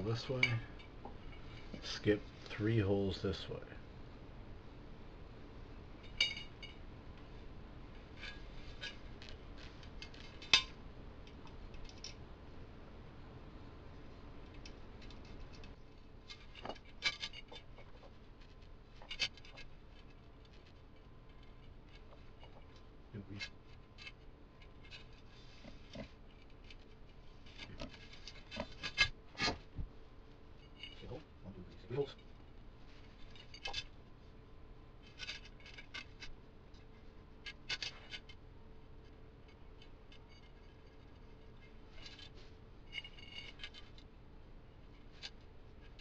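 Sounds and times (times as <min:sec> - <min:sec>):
faint steady hum: 0:00.0 - 0:46.0.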